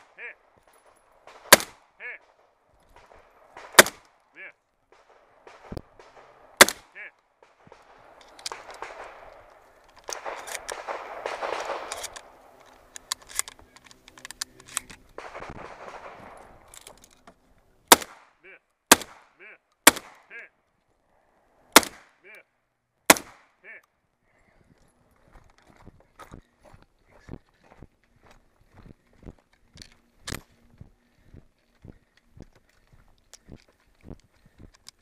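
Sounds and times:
gunshots: 1.2s - 4.1s, 4.9s - 9.5s, 10.1s - 12.4s, 15.2s - 16.7s, 17.9s - 20.4s, 21.8s - 22.2s, 23.1s - 23.6s.

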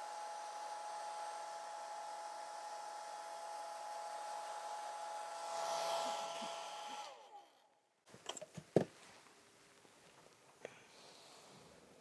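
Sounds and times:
hair dryer blowing: 0.0s - 7.4s.

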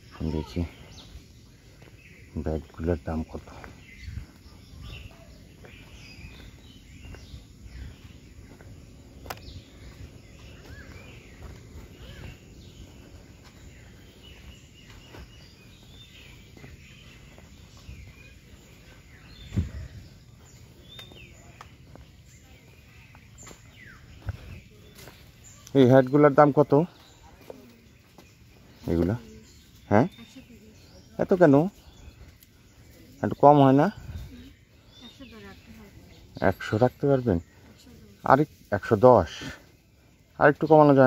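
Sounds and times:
birds chirping: 0.0s - 41.0s.

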